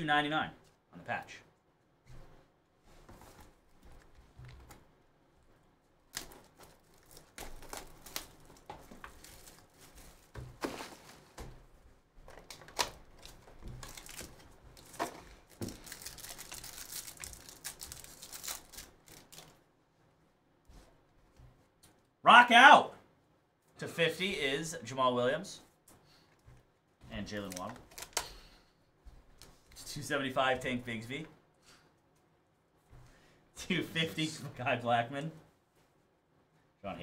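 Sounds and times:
foil pack crinkling and tearing: 6.1s - 11.3s, 12.4s - 19.6s, 27.4s - 28.3s.

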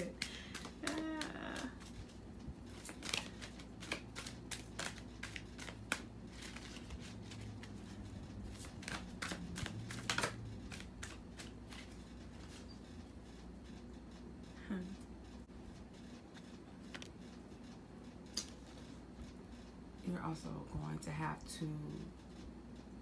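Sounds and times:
cards being shuffled: 0.0s - 12.6s.

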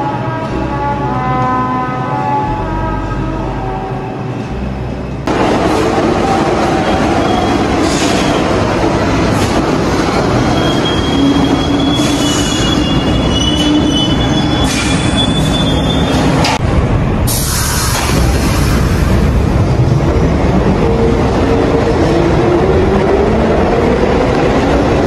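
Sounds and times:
train wheels on rail: 5.3s - 25.0s
high wheel squeal: 10.4s - 16.4s.

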